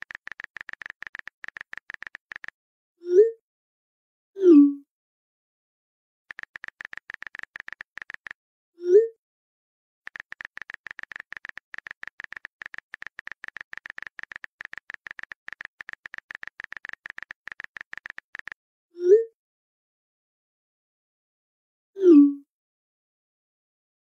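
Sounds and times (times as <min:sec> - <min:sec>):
phone keyboard typing clicks: 0:00.0 - 0:02.6, 0:06.3 - 0:08.4, 0:10.1 - 0:18.6.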